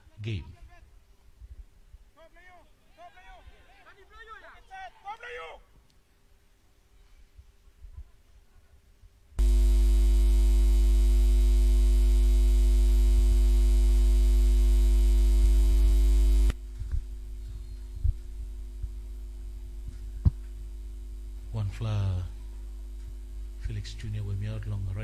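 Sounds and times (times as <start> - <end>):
faint hum: 9.3 - 25.0
loud electrical mains hum: 9.4 - 25.0.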